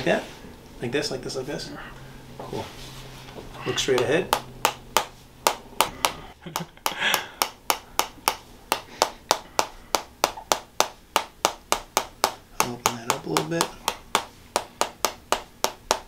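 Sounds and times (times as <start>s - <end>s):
massage hammer tapping a stake: 3.8s - 16.0s.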